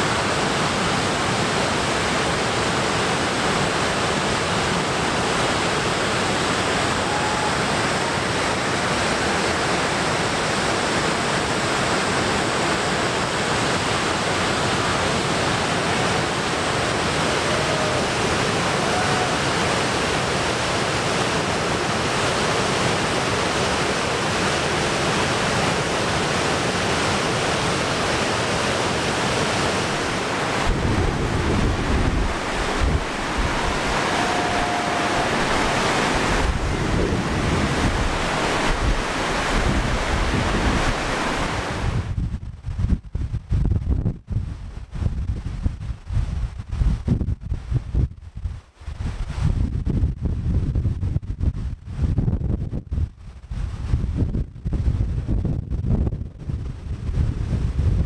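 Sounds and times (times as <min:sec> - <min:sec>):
waterfall rushing: 0:00.0 - 0:42.0
wind buffeting microphone: 0:29.0 - 0:58.0.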